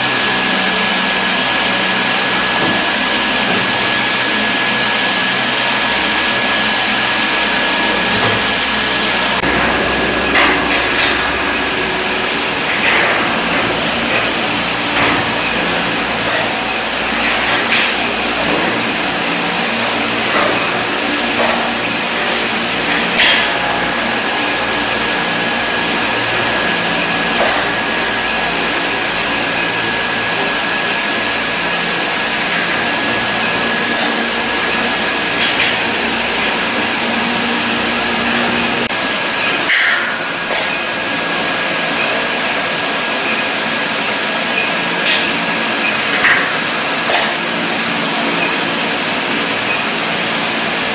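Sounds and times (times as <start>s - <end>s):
steady machine noise: 0.0s - 50.9s
thin high whine: 1.8s - 38.9s.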